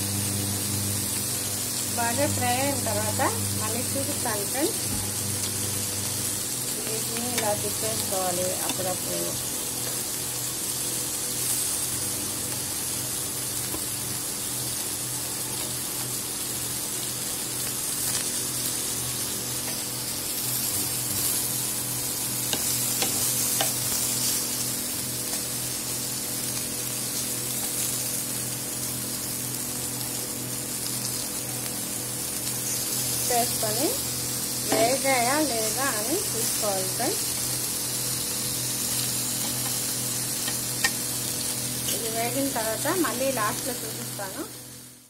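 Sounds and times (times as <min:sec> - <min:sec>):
steady low hum: 0:00.0 - 0:14.4, 0:17.7 - 0:28.3
oil sizzling in a pan: 0:00.0 - 0:45.0.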